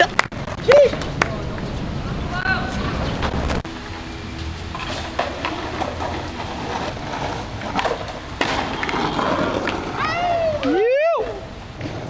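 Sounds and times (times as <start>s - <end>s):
skateboard wheels rolling on concrete: 0.0s - 12.0s
skateboard clacks: 4.7s - 12.0s.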